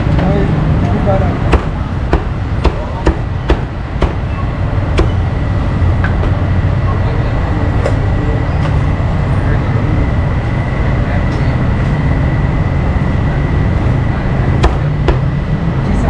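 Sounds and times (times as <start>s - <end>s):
cleaver chopping on wooden block: 1.5s - 4.2s, 14.6s - 15.3s.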